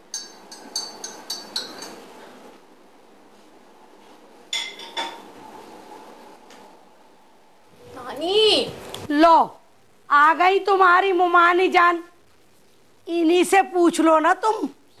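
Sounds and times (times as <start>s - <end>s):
crockery and cutlery clinking: 0.0s - 2.4s, 4.5s - 5.3s.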